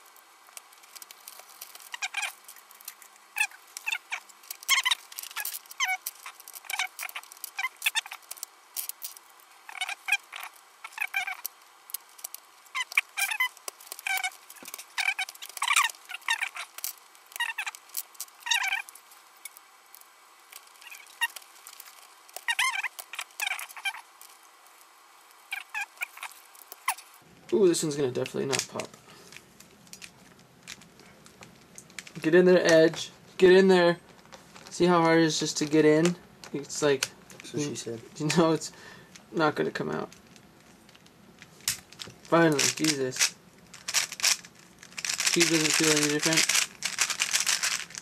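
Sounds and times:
plastic pieces clicking into place: 0.6s - 24.3s, 40.1s - 48.0s.

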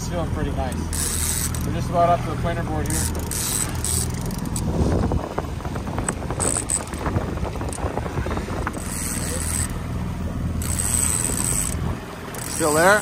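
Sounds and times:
boat engine humming: 0.0s - 13.0s
fishing reel gears clicking: 0.7s - 1.8s, 2.8s - 4.7s, 6.0s - 7.1s, 8.6s - 9.8s, 10.6s - 13.0s.

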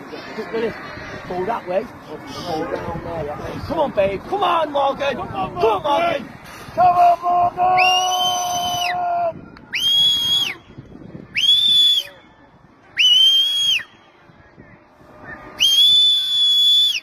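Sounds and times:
whistle long blasts: 7.8s - 9.0s, 9.7s - 10.6s, 11.3s - 12.2s, 13.0s - 13.9s, 15.6s - 17.0s.

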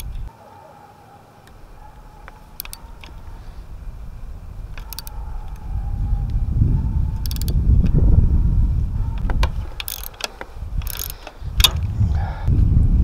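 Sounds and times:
low rumble: 1.6s - 9.7s, 10.6s - 13.0s
ratchet wrench clicking: 2.5s - 3.3s, 4.7s - 5.6s, 7.2s - 7.9s, 9.2s - 11.8s.

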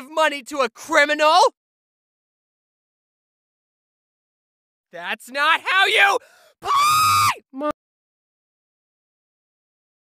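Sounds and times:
person screaming: 5.6s - 7.4s.

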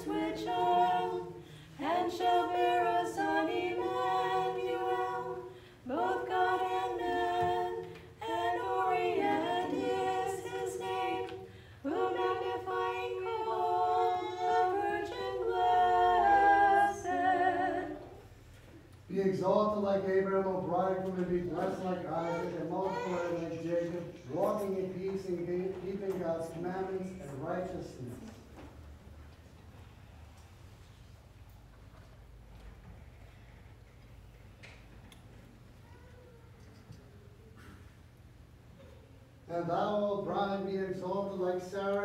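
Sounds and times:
choir singing a cappella: 0.0s - 18.3s.

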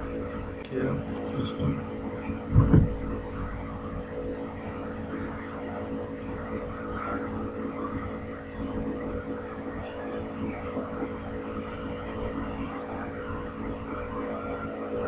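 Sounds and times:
constant low tones: 0.0s - 15.0s
steady background hum: 0.0s - 15.0s
brief low thump: 2.5s - 3.1s.

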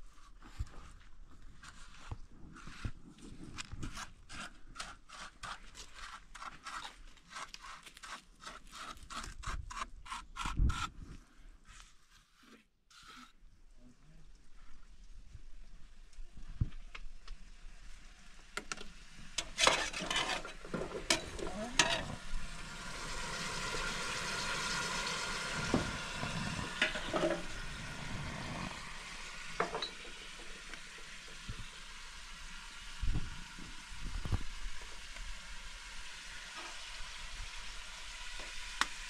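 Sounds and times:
potatoes and onions sizzling in pot: 14.4s - 39.0s
metal spoon scraping a pot: 19.4s - 22.2s, 26.2s - 27.6s.

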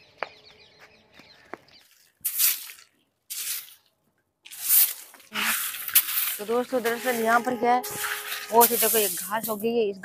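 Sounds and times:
broom sweeping dry leaves: 2.2s - 3.9s, 4.5s - 9.8s.

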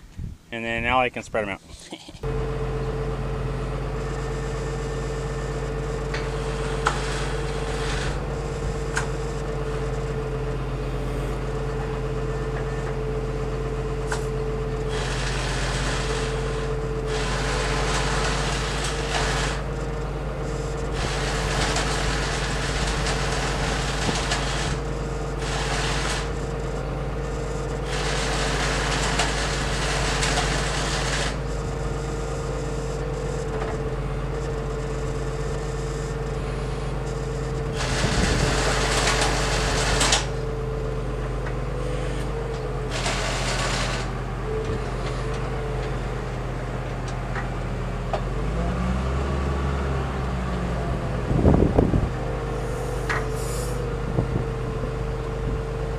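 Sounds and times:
diesel engine idling: 0.0s - 55.9s
hiss: 52.6s - 53.8s.

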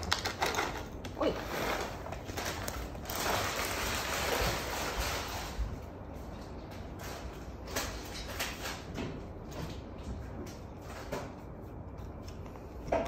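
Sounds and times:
foil bag rustling: 0.0s - 8.9s.

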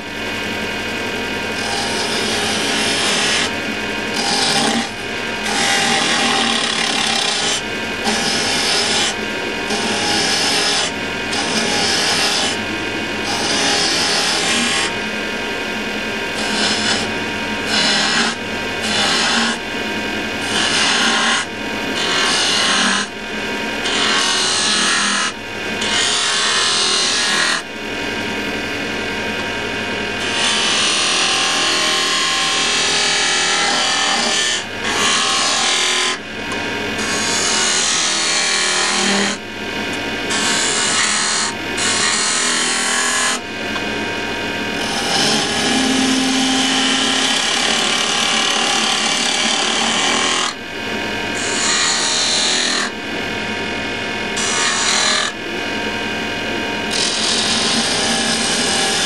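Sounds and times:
wood lathe humming: 0.0s - 59.0s
chisel rasping on spinning wood: 1.5s - 3.5s, 4.1s - 12.6s, 13.2s - 14.9s, 16.3s - 19.6s, 20.4s - 23.1s, 23.8s - 27.6s, 30.2s - 36.2s, 37.0s - 39.4s, 40.3s - 43.4s, 44.8s - 50.6s, 54.4s - 55.3s, 56.9s - 59.0s.

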